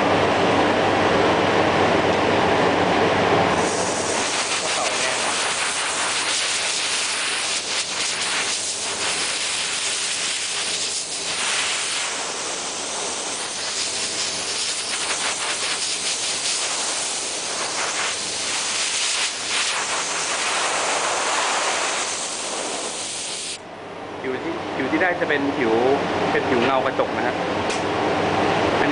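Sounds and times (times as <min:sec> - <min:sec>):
spray nozzle hissing: 0:03.6 - 0:23.6.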